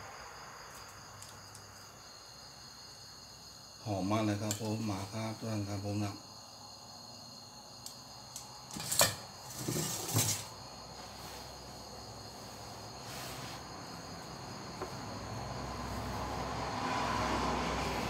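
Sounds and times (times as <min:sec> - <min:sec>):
crickets chirping: 0:00.0 - 0:18.0
bowl and paper scraping rustling: 0:08.8 - 0:11.7.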